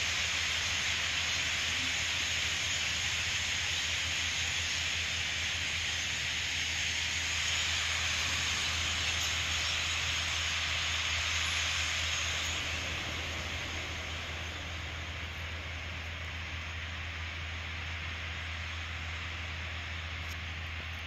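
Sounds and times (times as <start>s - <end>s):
starlings chattering: 0.0s - 21.0s
bird wingbeats: 0.1s - 16.6s.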